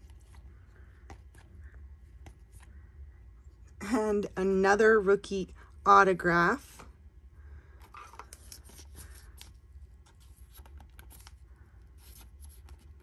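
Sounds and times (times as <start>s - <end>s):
cards rustling and clicking: 0.0s - 2.8s, 7.7s - 13.0s
low steady hum: 0.0s - 13.0s.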